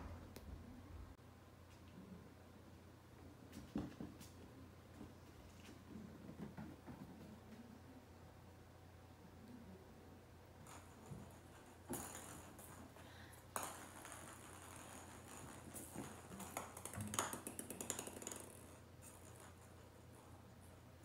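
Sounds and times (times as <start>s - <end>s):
ball rolling and rattling: 10.5s - 21.0s
plastic ball tapping on wood floor: 10.6s - 19.8s.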